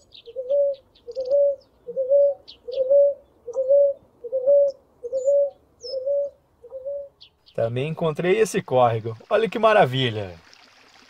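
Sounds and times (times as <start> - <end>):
dove cooing: 0.0 - 7.2
small birds chirping: 0.0 - 8.9.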